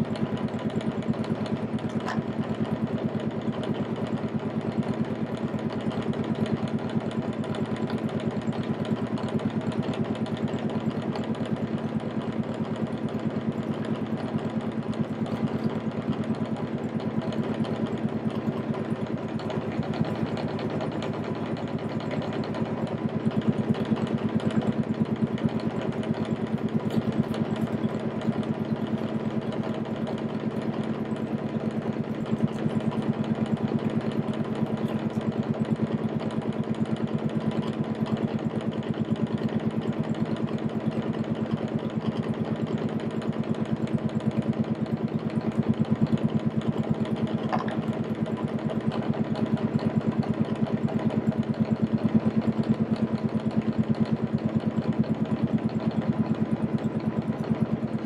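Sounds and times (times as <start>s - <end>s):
motorboat engine humming: 13.4s - 19.0s, 19.6s - 36.8s, 45.4s - 49.3s.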